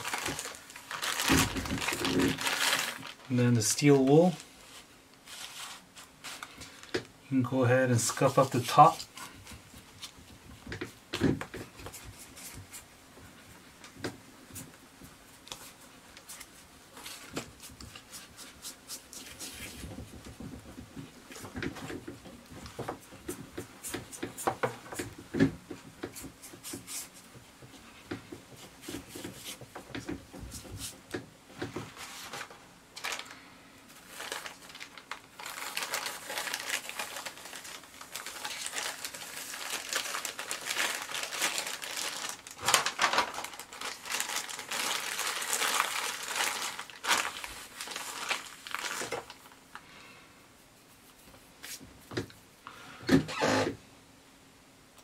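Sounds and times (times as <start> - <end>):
plastic film crinkling: 0.0 - 10.8, 31.8 - 49.9.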